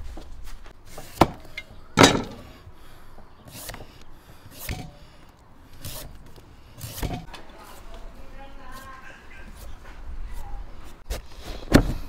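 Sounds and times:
vegetable peeler scraping melon skin: 3.4 - 5.1, 5.7 - 7.9.

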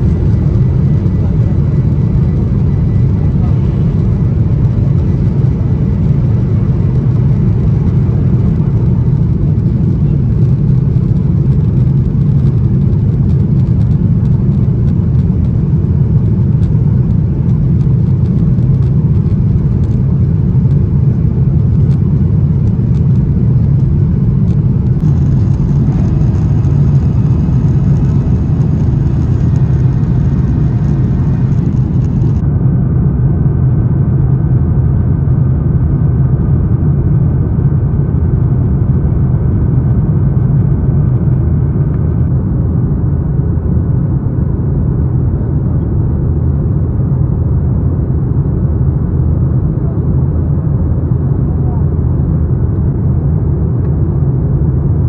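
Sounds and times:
rushing air: 0.0 - 10.1, 17.7 - 32.5
jet engines rumbling: 0.0 - 55.0.

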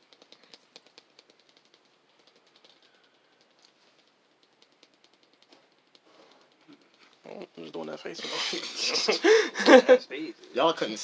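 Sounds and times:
faint clicks and ticks: 0.0 - 8.2.

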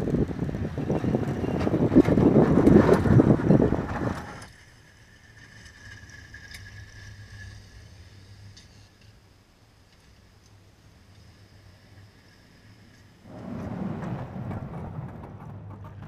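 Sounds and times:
snow scraping along plow blade: 0.0 - 16.0
faint high whine: 4.2 - 14.1
low hum: 10.6 - 16.0.

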